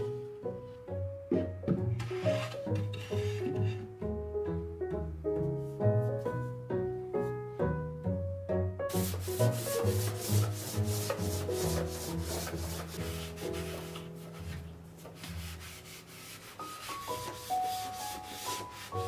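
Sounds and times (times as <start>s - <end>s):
soft background music: 0.0s - 19.0s
cloth wiping wood: 8.9s - 19.0s.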